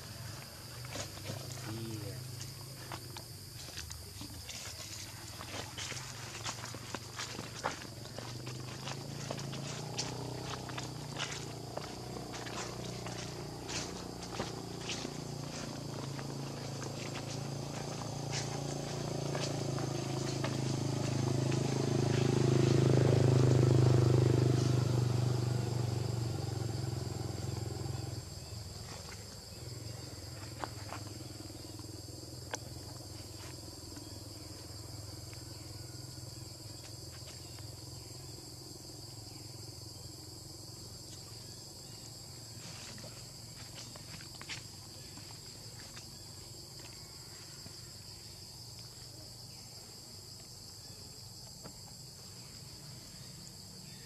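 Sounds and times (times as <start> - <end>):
high-pitched insect drone: 0.0 - 54.0.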